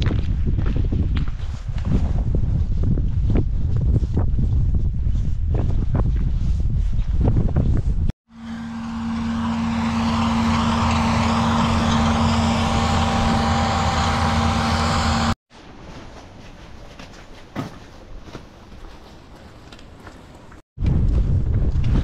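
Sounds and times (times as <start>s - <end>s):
outdoor noise: 0.0s - 22.0s
vehicle engine running: 8.3s - 15.4s.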